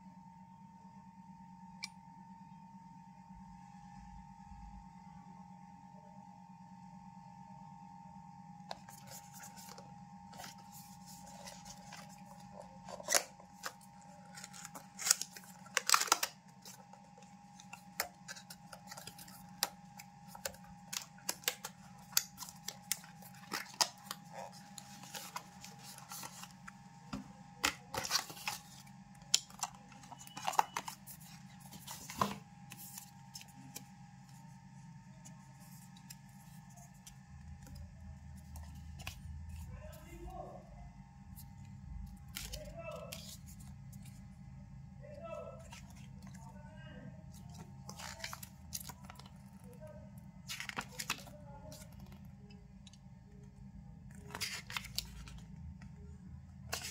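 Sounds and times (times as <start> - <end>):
faint hum: 0.0 - 56.9
cardboard and paper rustling: 8.7 - 40.5, 41.3 - 44.4, 45.2 - 53.0, 54.1 - 56.9.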